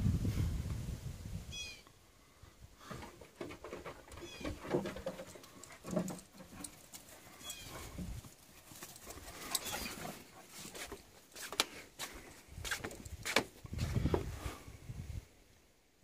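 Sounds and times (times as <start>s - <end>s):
dogs scuffling on grass: 4.2s - 14.1s.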